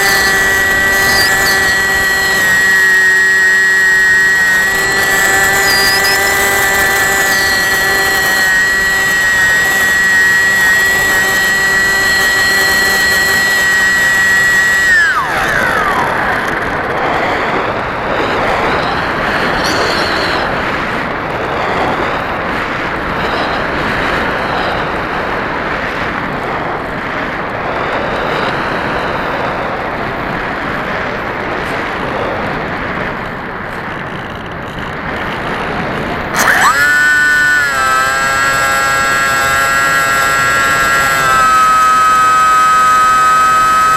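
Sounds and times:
electric motor whine: 0.0s - 43.9s
wind rushing over microphone: 0.0s - 43.9s.

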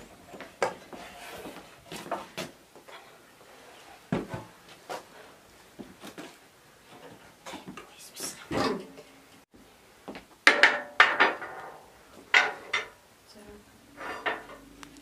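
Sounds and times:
objects knocking and clattering: 10.4s - 13.0s, 14.0s - 14.7s.

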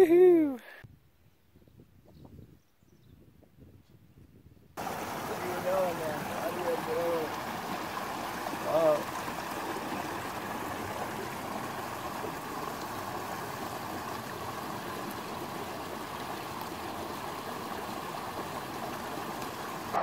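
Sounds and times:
creek running over logs: 4.8s - 20.0s.

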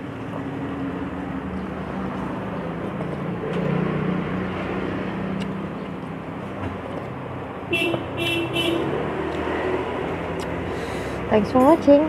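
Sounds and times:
motorbike engines passing: 0.0s - 12.0s.

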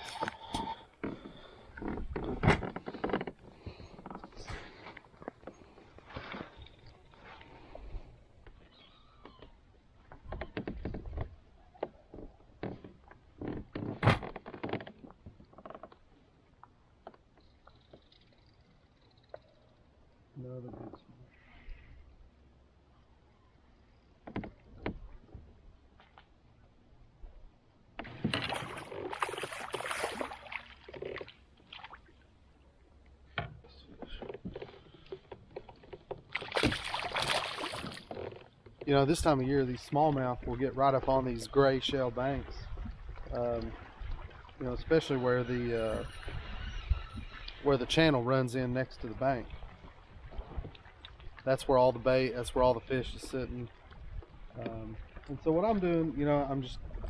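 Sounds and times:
fish flopping: 28.0s - 32.2s, 34.0s - 38.8s
fish splashing and thrashing: 28.0s - 32.3s, 34.2s - 38.8s.

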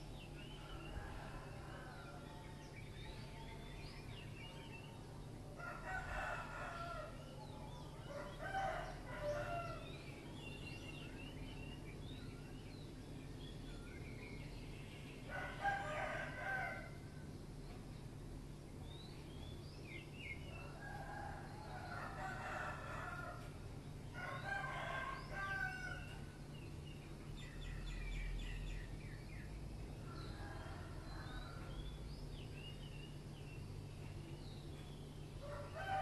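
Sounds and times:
rooster crowing: 5.6s - 7.2s, 8.0s - 9.9s, 15.3s - 17.0s, 20.6s - 23.5s, 24.1s - 26.2s, 30.1s - 31.8s, 35.4s - 36.0s.

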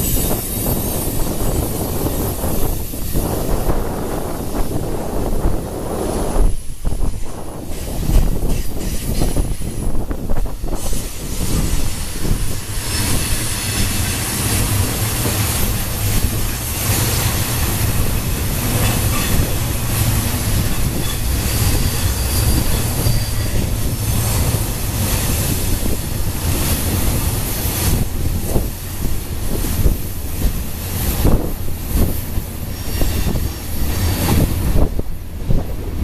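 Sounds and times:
freight train wheels rumbling: 0.0s - 36.0s
wheels clacking over rail joints: 7.2s - 31.7s
wheel squeal: 20.4s - 24.0s.

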